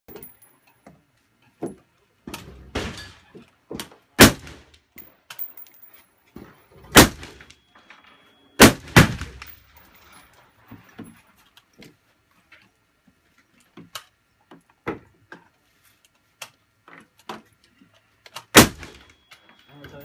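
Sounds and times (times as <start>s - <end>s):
loud rifle shots: 4.2s - 4.7s, 6.9s - 7.5s, 8.6s - 9.5s, 18.6s - 19.1s.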